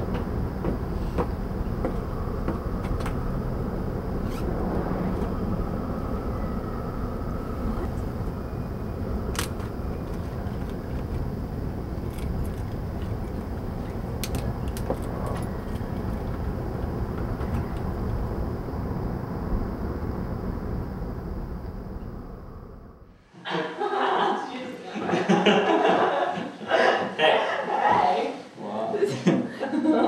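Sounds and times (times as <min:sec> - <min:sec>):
outdoor background rumble: 0:00.0 - 0:23.2.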